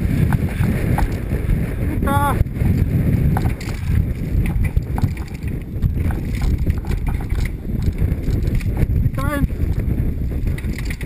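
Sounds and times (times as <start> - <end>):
mountain bike rumbling and rattling: 0.0 - 11.0
wind buffeting microphone: 0.0 - 11.0
bike chain and suspension clicks: 2.6 - 11.0.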